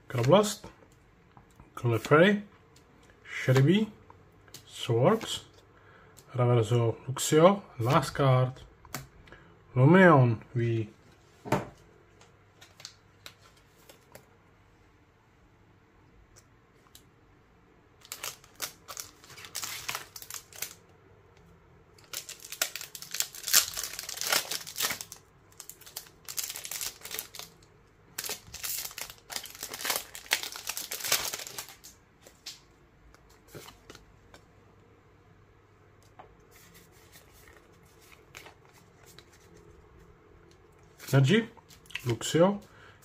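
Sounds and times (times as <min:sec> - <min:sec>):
foil wrapper crinkling and tearing: 0:18.0 - 0:20.8, 0:22.0 - 0:32.0.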